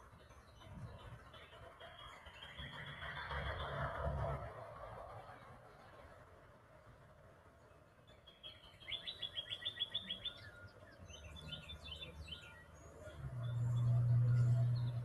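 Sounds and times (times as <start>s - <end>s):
bird chirps: 8.1s - 15.0s
songbird trill: 8.1s - 15.0s.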